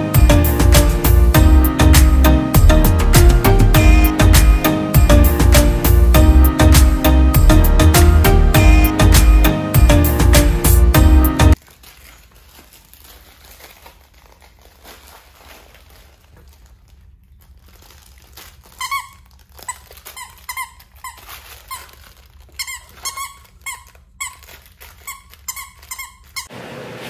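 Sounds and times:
dog toy squeaking: 18.8s - 26.5s.

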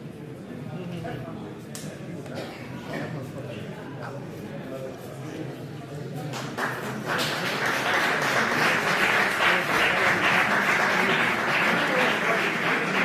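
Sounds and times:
spectators clapping: 6.3s - 13.0s.

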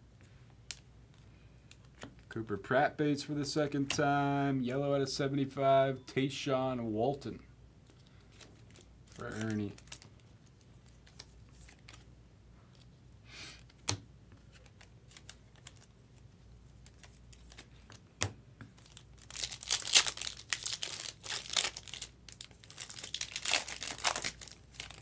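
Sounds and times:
card pack wrapper tearing and crinkling: 8.3s - 12.0s, 14.6s - 15.9s, 18.8s - 25.0s.

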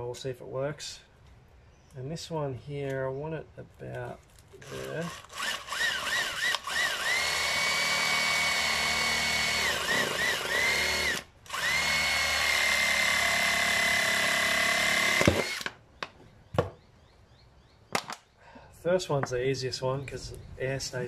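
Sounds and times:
cordless drill boring plastic: 4.6s - 15.7s.

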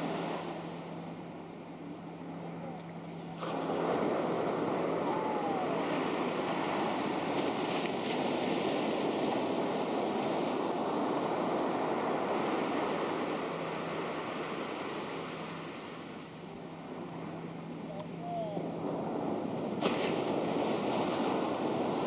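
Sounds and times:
ocean surf: 0.0s - 22.0s.

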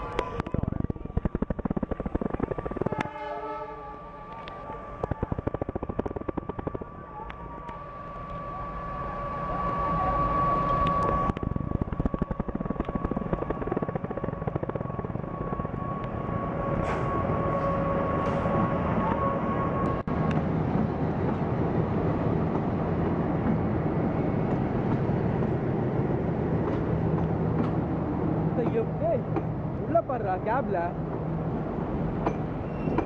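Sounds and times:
diesel locomotive passing: 0.0s - 33.0s
steady high-pitched tone: 1.3s - 20.1s.

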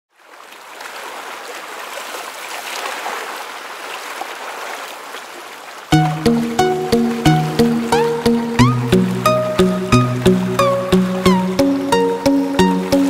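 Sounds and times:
water rushing past hull: 0.2s - 13.0s
music with regular beat: 5.9s - 13.0s.

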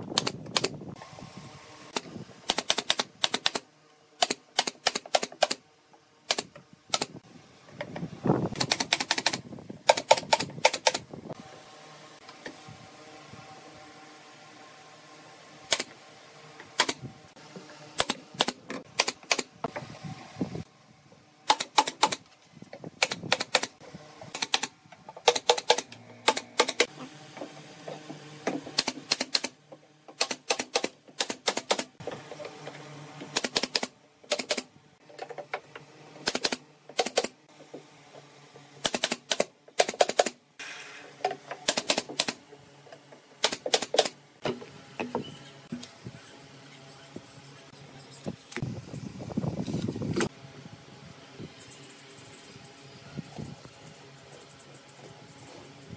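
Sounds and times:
nail gun firing: 0.0s - 0.8s, 1.9s - 3.6s, 4.2s - 5.6s, 6.3s - 7.2s, 8.5s - 11.0s, 15.7s - 15.9s, 16.7s - 17.1s, 18.0s - 19.5s, 21.4s - 22.2s, 23.0s - 26.9s, 28.7s - 29.6s, 30.2s - 31.9s, 33.3s - 34.7s, 36.2s - 37.4s, 38.8s - 41.0s, 41.6s - 42.4s, 43.4s - 44.2s.

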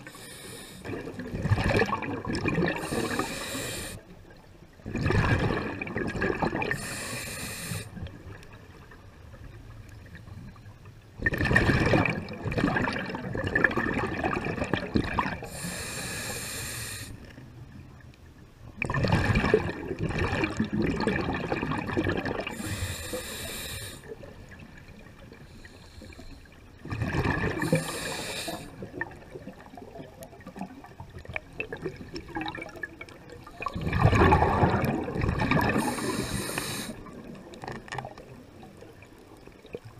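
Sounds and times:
diver breathing through regulator: 0.0s - 1.0s, 2.7s - 4.0s, 6.7s - 8.0s, 15.4s - 17.2s, 22.5s - 24.1s, 25.4s - 26.5s, 27.5s - 28.8s, 35.6s - 37.1s
rush of exhaled bubbles: 0.8s - 4.0s, 4.8s - 8.3s, 11.2s - 16.4s, 18.8s - 24.6s, 26.8s - 39.9s.

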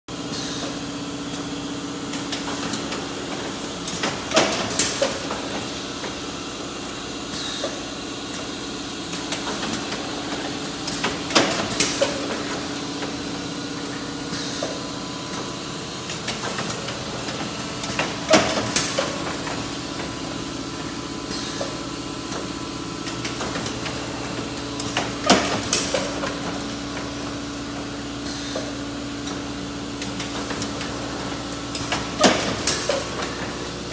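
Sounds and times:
packaging machine humming: 0.1s - 33.9s
machine mechanism clacking: 2.1s - 5.7s, 9.1s - 13.2s, 16.1s - 20.2s, 21.4s - 27.2s, 30.0s - 33.9s.

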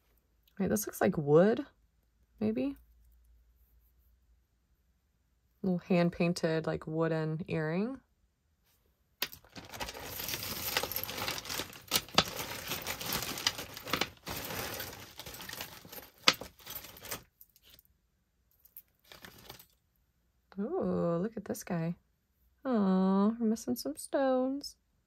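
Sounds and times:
metal chain necklace jangling: 9.2s - 17.8s, 18.5s - 19.8s.

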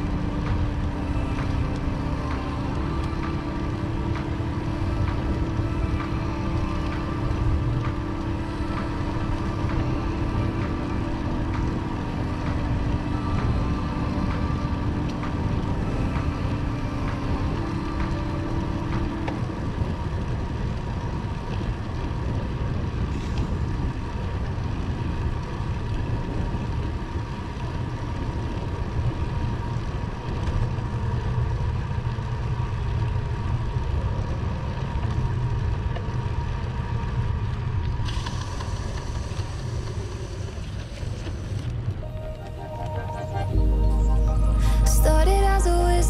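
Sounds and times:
faint steady whine: 0.0s - 46.0s
road noise: 0.0s - 46.0s.

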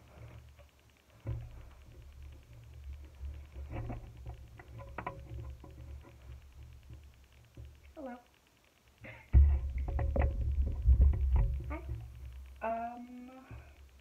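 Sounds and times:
handling knocks and rustles: 0.0s - 7.8s, 9.3s - 12.6s
faint steady ticking: 0.0s - 14.0s.

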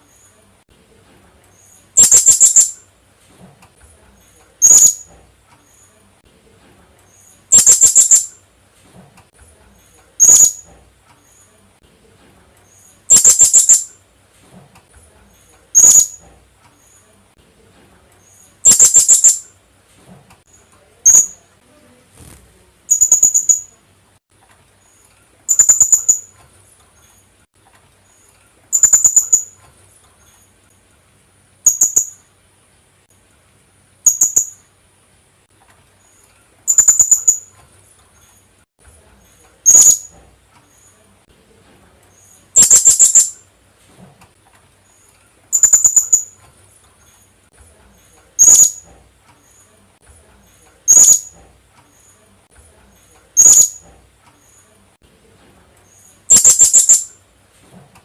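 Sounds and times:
parrot shrill calls: 2.0s - 2.8s, 4.6s - 5.0s, 7.5s - 8.3s, 10.2s - 10.6s, 13.1s - 13.9s, 18.6s - 19.4s, 25.5s - 26.3s, 36.7s - 37.4s, 39.7s - 40.1s, 42.6s - 43.4s, 45.6s - 46.3s, 48.4s - 48.8s, 50.9s - 51.3s, 53.4s - 53.8s, 56.3s - 57.1s.

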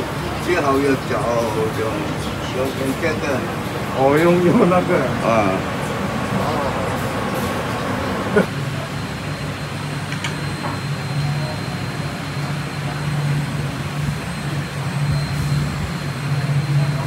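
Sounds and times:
kitchen equipment roaring: 0.0s - 17.0s
faint high whine: 7.7s - 17.0s.

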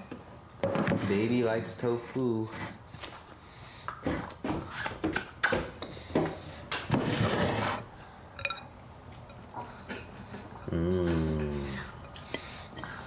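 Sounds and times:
dishes and utensils clinking: 8.4s - 10.1s.

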